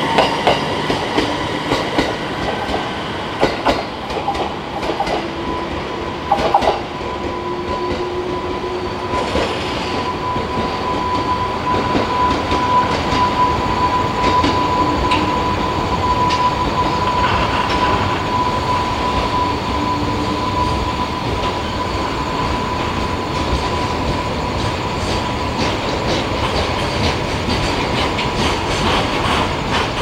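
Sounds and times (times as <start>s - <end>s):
train rolling on rails: 0.0s - 30.0s
wheels clicking over rail joints: 24.6s - 30.0s.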